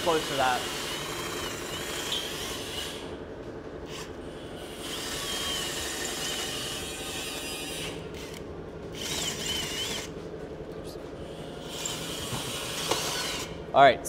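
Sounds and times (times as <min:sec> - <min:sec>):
drill motor whirring: 0:00.0 - 0:03.2, 0:03.8 - 0:10.2, 0:11.3 - 0:13.6
drill bit squealing in metal: 0:00.2 - 0:03.0, 0:04.8 - 0:08.0, 0:11.6 - 0:13.5.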